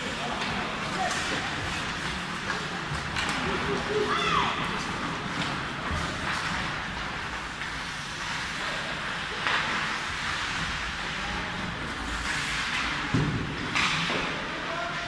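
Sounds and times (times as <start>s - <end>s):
skates scraping on ice: 0.0s - 15.0s.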